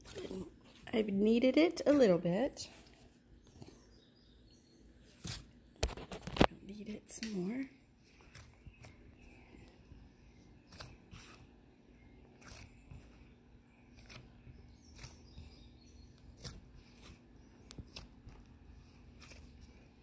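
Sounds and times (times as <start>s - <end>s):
dough being kneaded: 5.0s - 20.0s.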